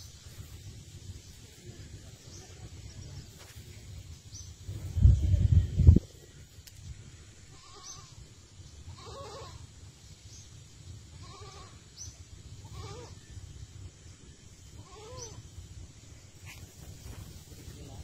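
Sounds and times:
goat bleating: 8.9s - 9.6s, 11.2s - 11.8s, 12.6s - 13.2s.

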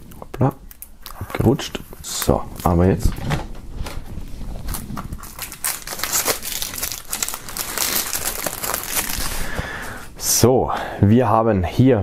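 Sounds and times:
plastic shrink-wrap crinkling: 0.0s - 3.0s, 3.7s - 9.6s.

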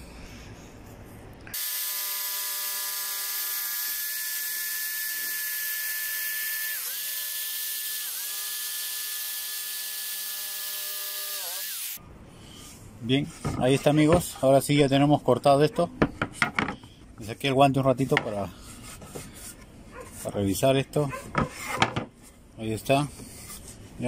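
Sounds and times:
power tool cutting wood: 1.5s - 12.0s.

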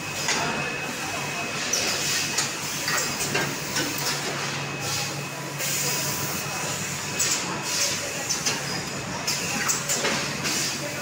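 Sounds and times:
machinery hum and hiss: 0.0s - 11.0s.

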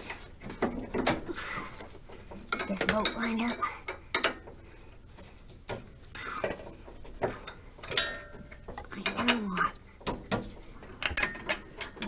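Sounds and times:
metal clinks and knocks: 2.1s - 4.7s, 6.5s - 12.0s.

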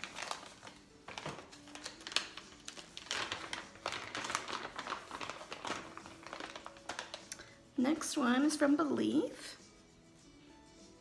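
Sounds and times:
packaging rustling: 0.0s - 7.6s.

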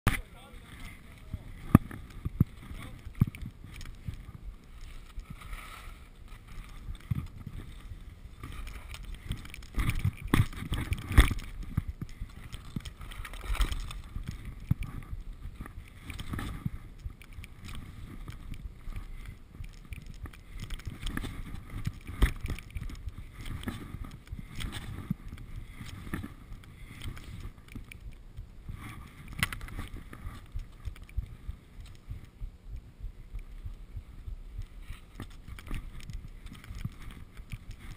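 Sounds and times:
skis scraping over snow: 0.2s - 24.0s.

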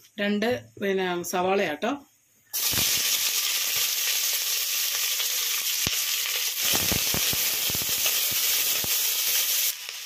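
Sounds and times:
onions sizzling in oil: 2.5s - 10.0s.

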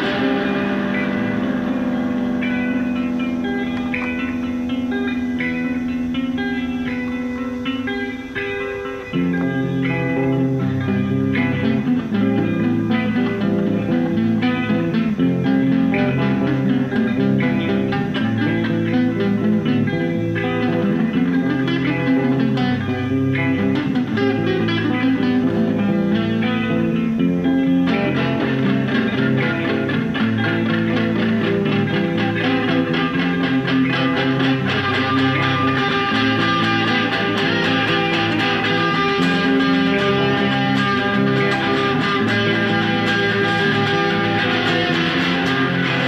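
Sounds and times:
electric guitar notes: 0.0s - 46.0s.

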